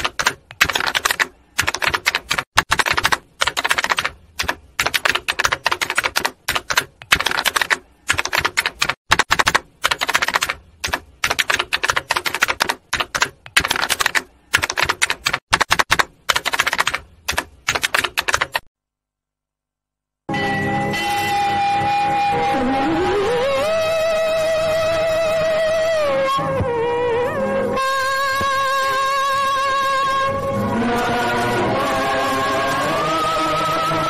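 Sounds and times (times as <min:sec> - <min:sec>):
keyboard typing clicks: 0:00.0 - 0:18.7.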